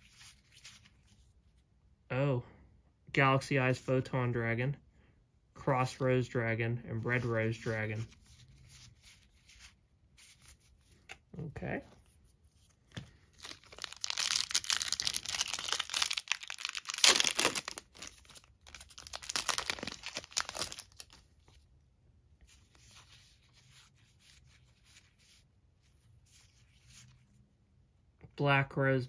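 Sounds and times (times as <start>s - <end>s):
cards rustling: 7.1s - 21.6s
foil pack tearing and crinkling: 13.4s - 21.2s.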